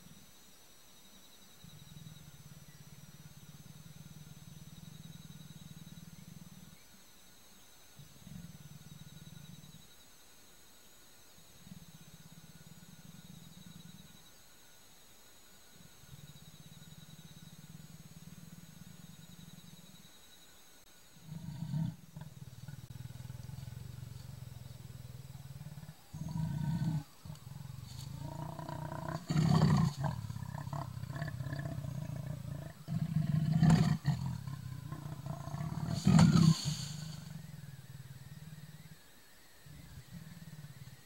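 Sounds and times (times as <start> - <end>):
leopard growling and roaring: 1.6 - 6.9, 8.0 - 9.8, 21.2 - 39.1, 39.7 - 41.0.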